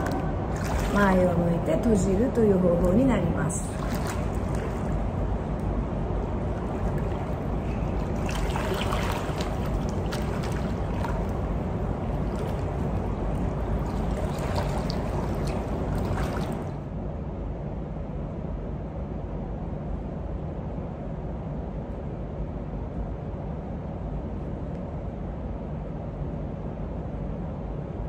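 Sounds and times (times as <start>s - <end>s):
water sloshing and splashing: 0.0s - 16.9s
steady low hum: 0.0s - 28.0s.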